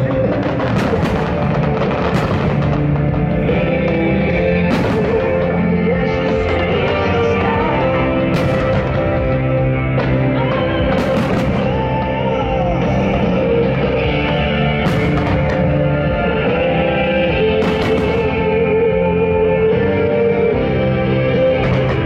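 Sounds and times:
rock music: 0.0s - 22.0s
wavering lead guitar: 0.0s - 22.0s
sharp crashes: 17.4s - 18.8s.

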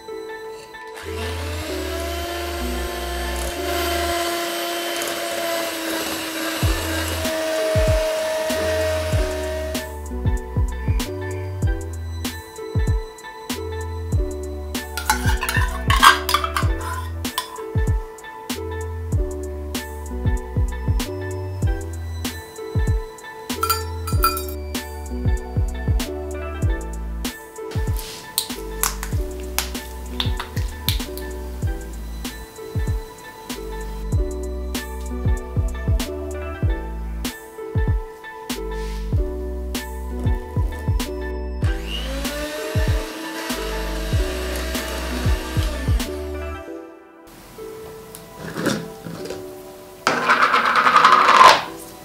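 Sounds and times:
background music: 0.0s - 52.0s
electric hand mixer whining: 1.0s - 9.9s, 15.0s - 17.6s, 41.6s - 46.3s
beaters whipping in glass bowl: 15.0s - 17.6s, 23.6s - 24.6s.

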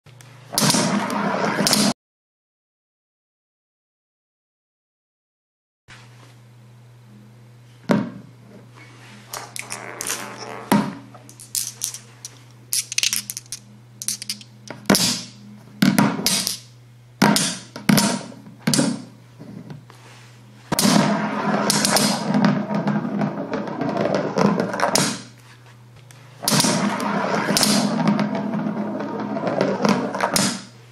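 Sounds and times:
balls rolling in plastic bowl: 0.7s - 1.9s, 20.8s - 25.3s, 26.4s - 30.5s
low steady hum: 5.9s - 30.9s
steel balls clacking onto magnet: 11.3s - 14.6s.

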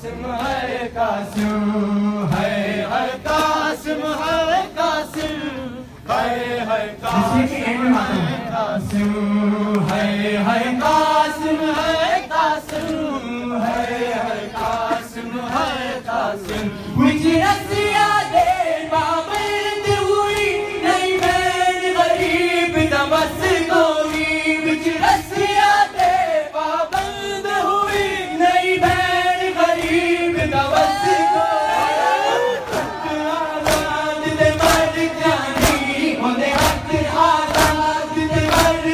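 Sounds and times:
men chanting a lament: 0.0s - 38.9s
hands slapping chests: 33.6s - 38.9s.

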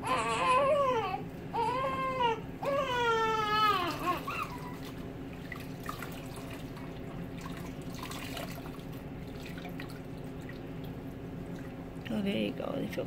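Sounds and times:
water trickling into basin: 3.8s - 12.4s.

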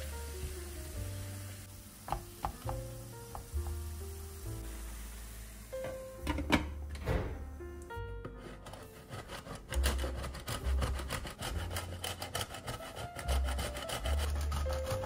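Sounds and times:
cheese grating on metal grater: 8.3s - 15.0s.

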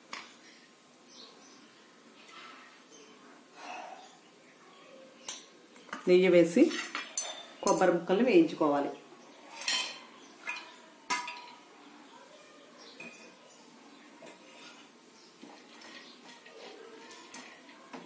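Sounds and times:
steel plate clinking on pan: 6.7s - 7.9s, 9.6s - 11.6s
spoon stirring in pan: 9.3s - 12.0s, 12.9s - 18.0s.

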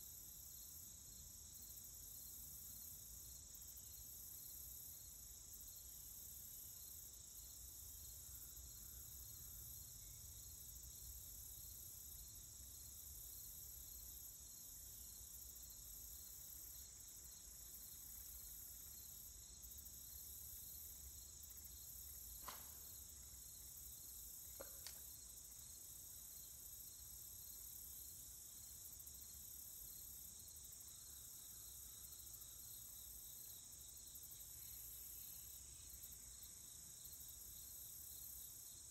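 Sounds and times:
crickets chirring: 0.5s - 38.9s
faint sharp clicks: 24.6s - 25.1s.

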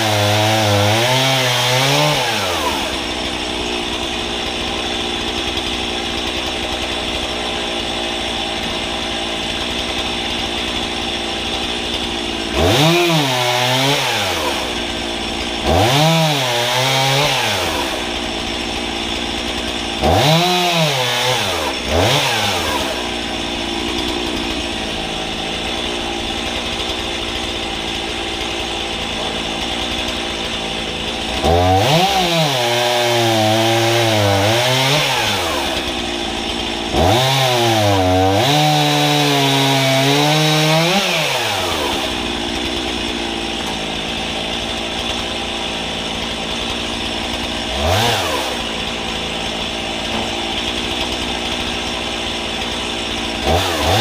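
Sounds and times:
chainsaw engine revving: 0.0s - 54.0s.

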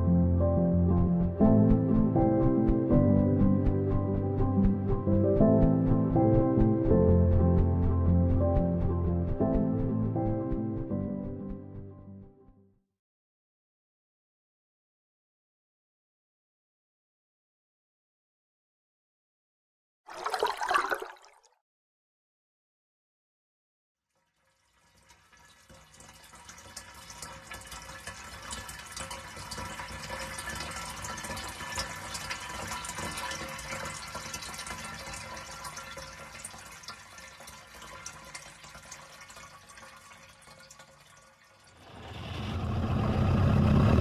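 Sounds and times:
liquid flowing and gurgling: 20.1s - 21.5s, 24.3s - 44.0s
car engine starting and running: 41.8s - 44.0s.

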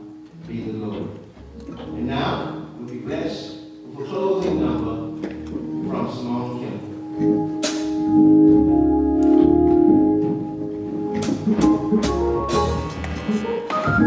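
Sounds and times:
organ playing held chords: 0.0s - 14.0s
sharp percussion hits: 11.1s - 14.0s.

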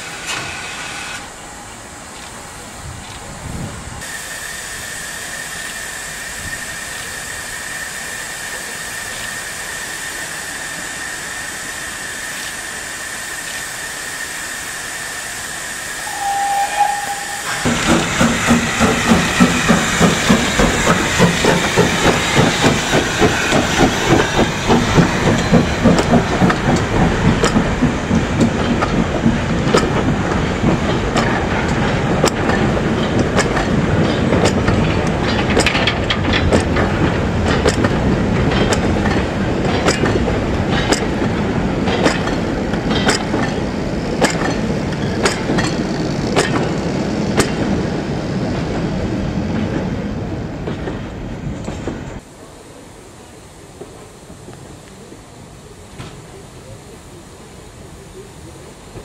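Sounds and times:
steam locomotive hissing: 0.0s - 59.0s
steam whistle note: 16.0s - 17.7s.

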